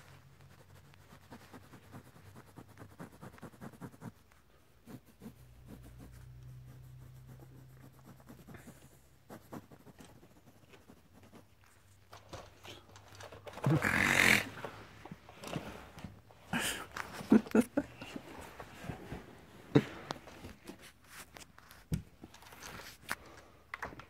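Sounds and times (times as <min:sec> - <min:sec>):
fingers scratching on pillowcase: 0:00.0 - 0:11.7.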